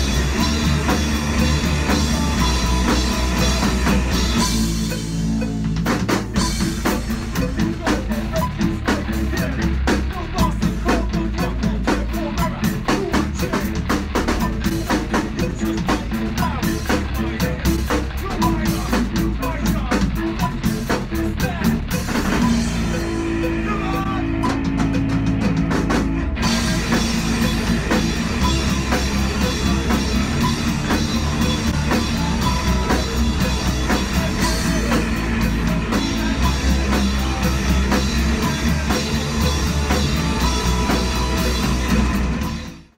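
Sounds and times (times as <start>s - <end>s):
metal band playing live: 0.0s - 42.9s
person singing into microphone: 22.5s - 24.5s.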